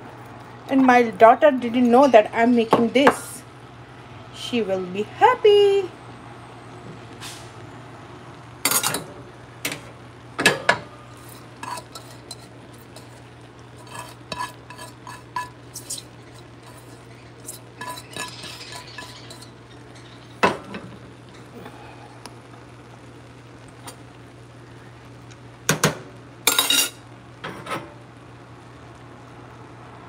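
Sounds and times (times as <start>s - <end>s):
steady low hum: 0.0s - 30.0s
rice being spooned in: 11.1s - 20.6s.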